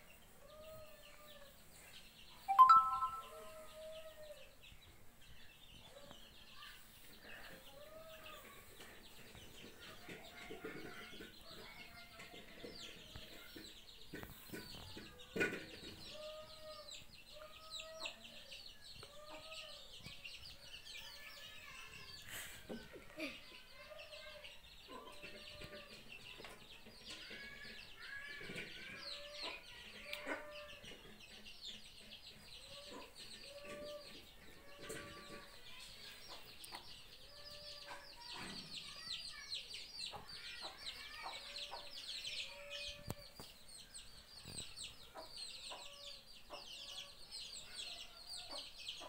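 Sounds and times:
small birds chirping: 0.0s - 49.0s
chickens clucking: 5.8s - 49.0s.

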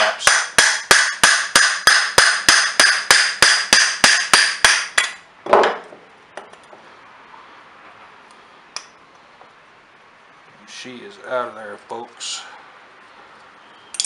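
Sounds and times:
hammer tapping on metal: 0.0s - 5.2s.

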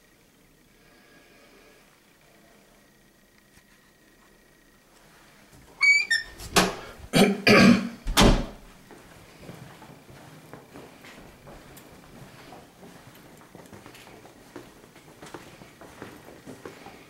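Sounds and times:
high squeak: 5.8s - 6.4s
person coughing harshly: 7.1s - 8.0s.

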